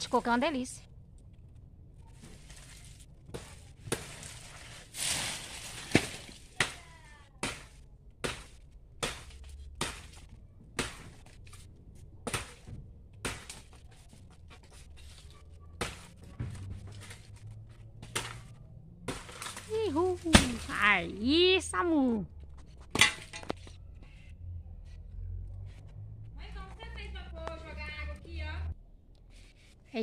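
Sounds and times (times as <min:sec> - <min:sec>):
blade chopping wood: 0:05.0 - 0:11.4, 0:12.2 - 0:13.8, 0:15.8 - 0:17.2, 0:18.0 - 0:21.0.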